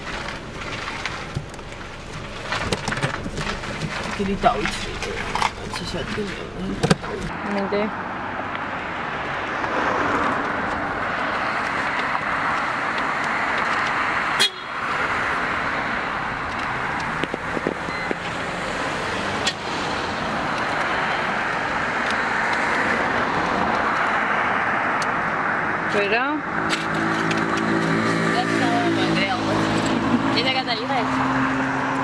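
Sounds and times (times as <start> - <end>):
vehicle noise: 0.0 - 32.0.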